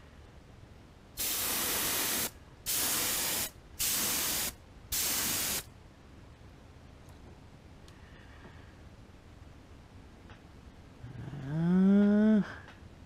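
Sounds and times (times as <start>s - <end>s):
airbrush spraying hiss: 1.2s - 5.7s.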